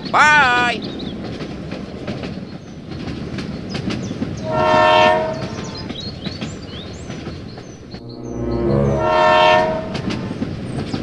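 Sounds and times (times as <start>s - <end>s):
toy train whistle: 4.5s - 5.5s, 8.9s - 10.2s.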